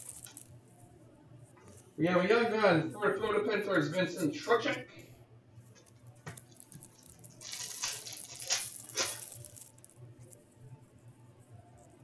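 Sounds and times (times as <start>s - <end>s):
foil pack crinkling and ripping: 0.0s - 0.5s, 6.3s - 9.9s.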